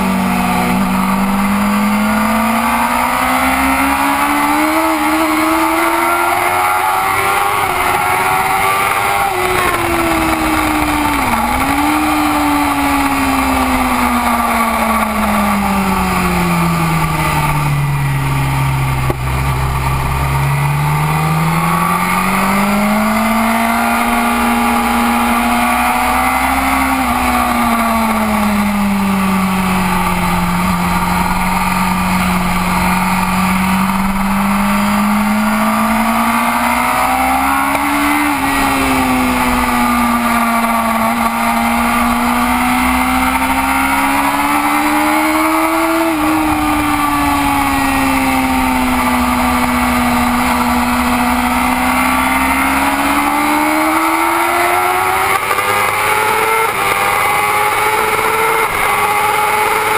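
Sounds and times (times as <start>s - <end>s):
motorcycle engine racing: 0.0s - 59.9s
wind rushing over microphone: 6.8s - 18.1s.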